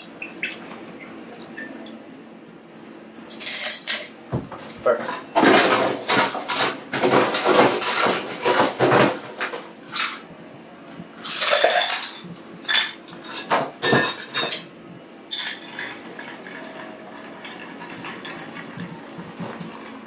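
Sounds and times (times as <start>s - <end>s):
glassware and bar tools clinking: 15.3s - 19.9s.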